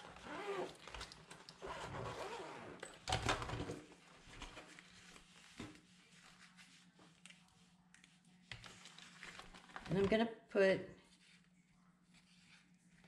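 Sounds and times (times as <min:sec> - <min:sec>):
zipper being pulled open: 0:00.0 - 0:01.0, 0:01.6 - 0:02.8.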